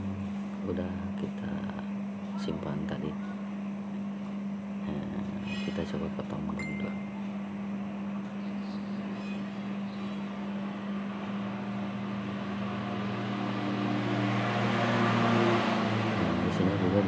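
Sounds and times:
engine droning: 8.3s - 17.0s.

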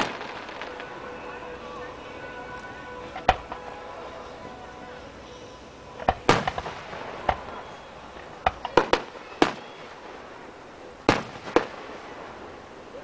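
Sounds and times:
firework shells bursting: 0.0s - 1.9s, 6.0s - 12.8s.

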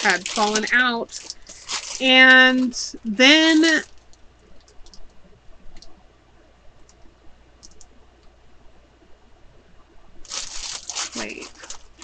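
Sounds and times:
rustling: 0.0s - 5.9s, 10.2s - 12.0s.

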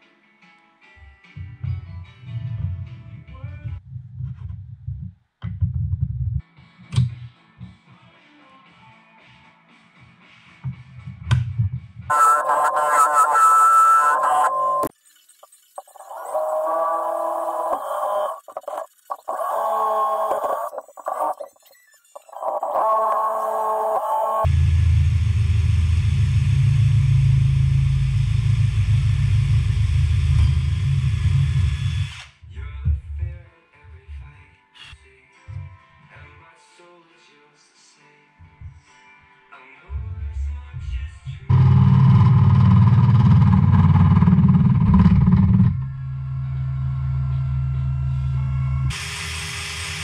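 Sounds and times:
cordless drill boring into wood: 16.0s - 21.3s, 28.9s - 32.3s
wood lathe humming: 16.2s - 18.7s, 41.5s - 45.8s.

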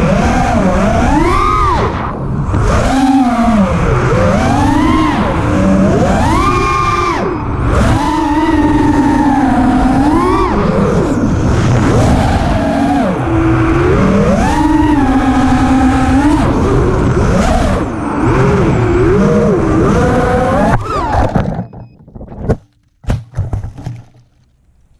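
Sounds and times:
quadcopter motors whining: 0.0s - 21.2s
knocks of drone landing: 20.7s - 24.2s.

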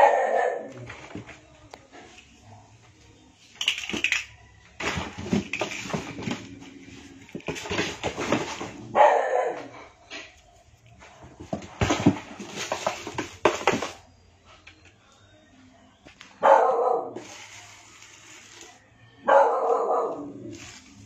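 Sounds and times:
cardboard scraping and rustling: 4.8s - 9.0s, 11.1s - 14.0s, 17.1s - 18.8s, 20.3s - 21.0s.

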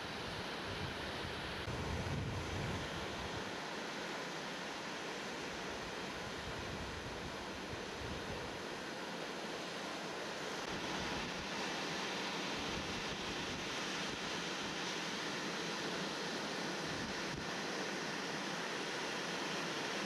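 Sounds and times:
wind gusting on microphone: 0.7s - 3.4s.

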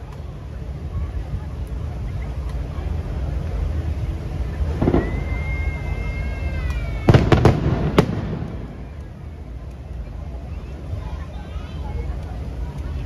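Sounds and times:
firework bangs: 4.5s - 5.9s, 6.8s - 9.4s
whistling firework shell: 4.7s - 9.1s.

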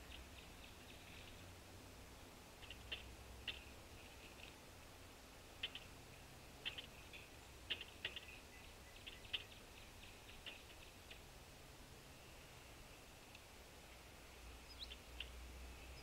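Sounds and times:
woodpecker tapping on wood: 2.6s - 3.7s, 5.6s - 6.0s, 6.6s - 8.4s, 9.0s - 11.2s.

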